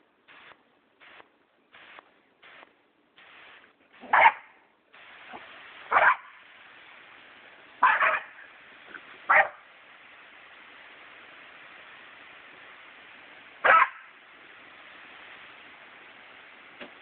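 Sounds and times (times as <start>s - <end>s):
water spraying from garden hose: 0.3s - 17.0s
puppies barking sharply: 4.0s - 4.5s, 5.9s - 6.3s, 7.8s - 8.3s, 9.3s - 9.6s, 13.6s - 14.1s.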